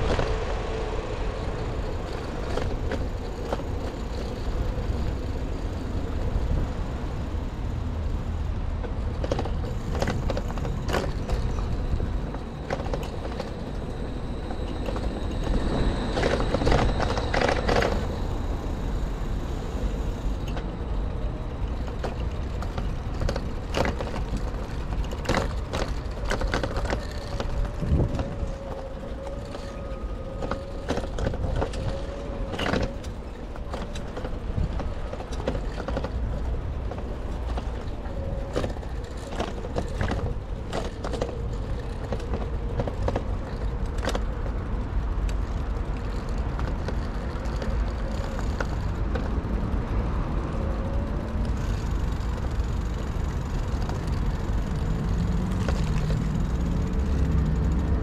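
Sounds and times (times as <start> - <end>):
passing car engines rumbling: 0.0 - 58.0
wind on microphone: 9.0 - 48.3.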